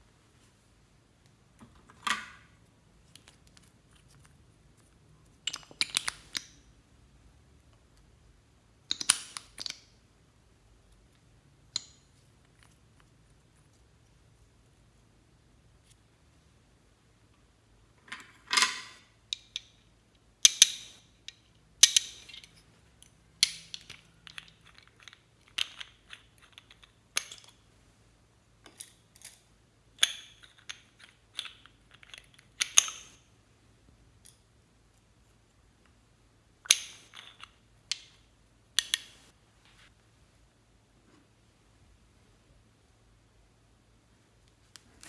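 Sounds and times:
bottle caps clicking and tapping: 5.3s - 6.7s, 8.8s - 10.0s, 11.7s - 12.7s, 18.1s - 27.6s, 30.0s - 33.3s, 36.7s - 38.2s, 38.8s - 39.2s.

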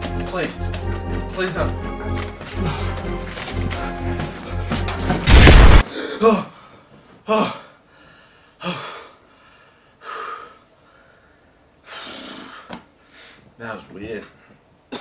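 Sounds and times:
man breathing heavily: 2.4s - 4.2s, 5.8s - 13.5s
man gasping: 2.5s - 3.0s.

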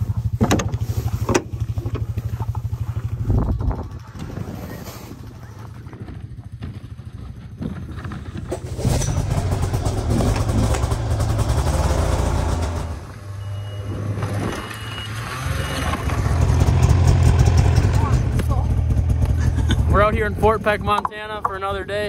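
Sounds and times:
snowmobile engine running: 0.0s - 22.0s
reverse warning beeps: 13.2s - 16.1s.

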